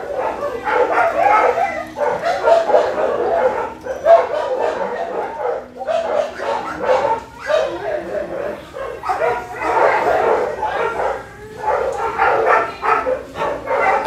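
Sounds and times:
dogs barking and yipping: 0.0s - 14.0s.

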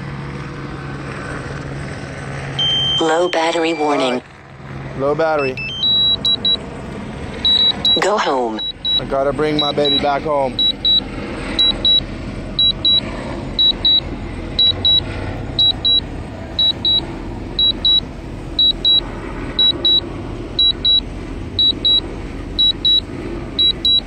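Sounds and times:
short high beeps: 2.6s - 4.1s, 5.4s - 6.6s, 7.5s - 9.0s, 10.6s - 11.0s, 11.6s - 12.0s, 12.6s - 13.0s, 13.6s - 14.0s, 14.6s - 16.0s, 16.6s - 17.0s, 17.6s - 18.0s, 18.6s - 19.0s, 19.6s - 20.0s, 20.6s - 21.0s, 21.6s - 22.0s, 22.6s - 24.0s.

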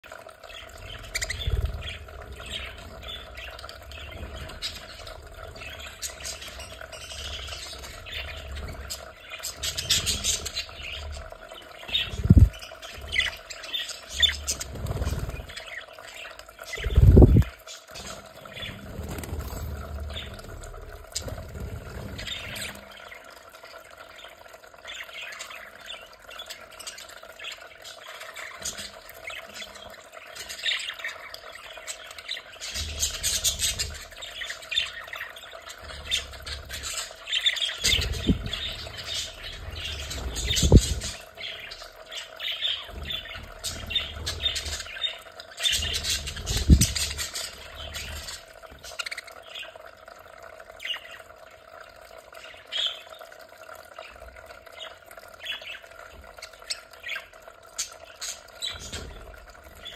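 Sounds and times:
budgerigars chattering: 35.8s - 49.7s.

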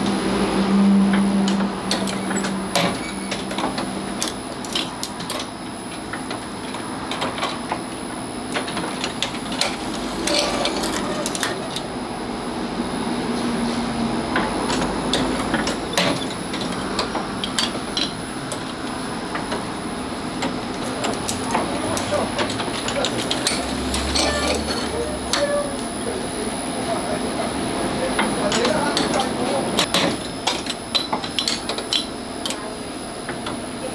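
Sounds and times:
metallic clicks and clacks: 20.4s - 25.5s.

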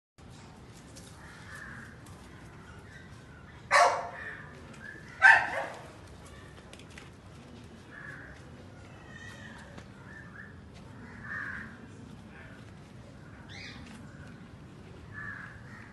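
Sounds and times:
puppy barking: 3.7s - 4.2s, 5.2s - 5.9s.

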